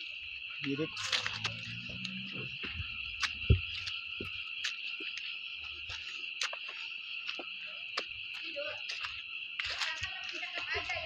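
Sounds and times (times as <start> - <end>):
crickets chirping: 0.0 - 11.0
low thump: 2.7 - 3.7.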